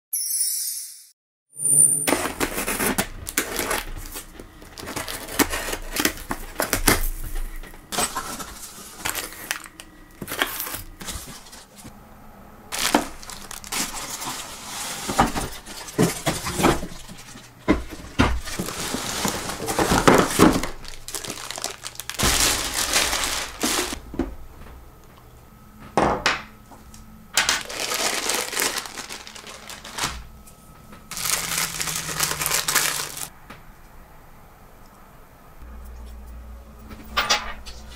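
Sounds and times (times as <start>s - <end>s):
cardboard scraping and rustling: 2.1s - 11.9s, 12.8s - 24.0s, 27.5s - 30.3s, 31.1s - 33.3s
plastic wrapping crinkling: 2.4s - 11.8s, 12.7s - 24.0s, 27.4s - 30.4s, 31.1s - 33.3s.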